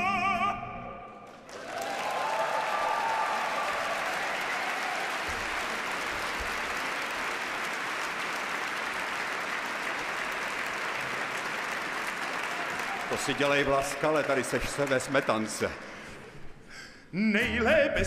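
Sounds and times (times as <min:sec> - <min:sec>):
audience applauding: 0:01.3 - 0:16.0.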